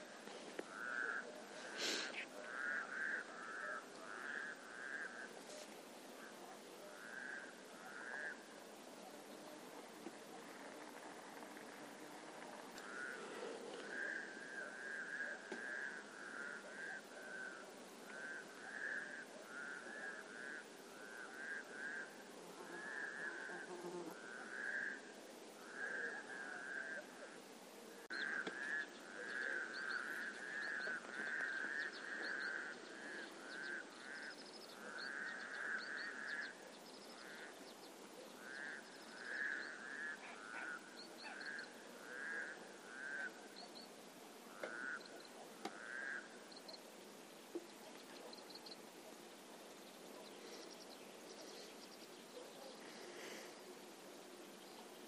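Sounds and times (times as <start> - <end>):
frogs croaking: 0.0 - 55.0.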